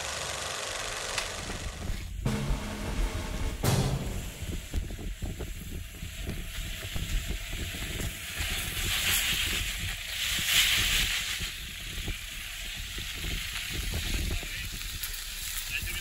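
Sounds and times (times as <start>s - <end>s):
engine rumbling under load: 0.0s - 7.5s
tyres hissing on sand: 5.1s - 16.0s.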